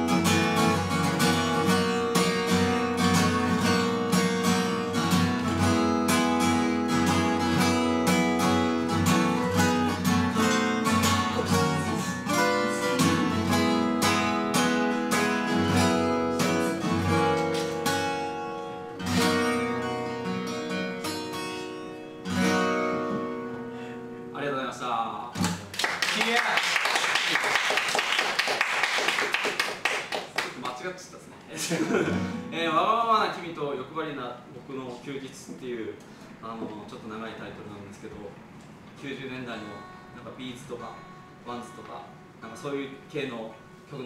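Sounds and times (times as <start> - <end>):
acoustic guitar strumming: 0.0 - 24.7, 31.9 - 33.3, 39.5 - 44.0.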